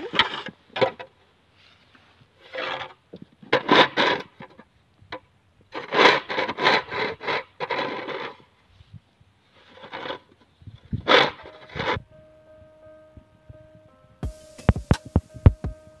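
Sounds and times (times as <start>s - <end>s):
snow shovel scraping pavement: 2.4s - 4.4s, 5.7s - 8.6s, 9.4s - 12.0s.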